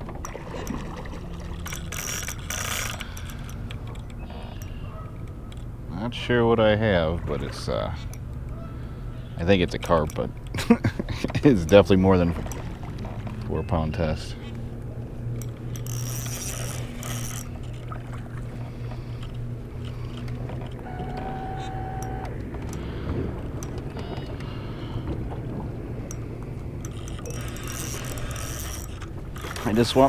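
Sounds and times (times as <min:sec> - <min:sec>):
steady low hum: 0:00.0 - 0:30.0
fishing reel clicking and rattling: 0:01.6 - 0:05.7, 0:11.3 - 0:13.0, 0:15.3 - 0:17.9, 0:26.0 - 0:30.0.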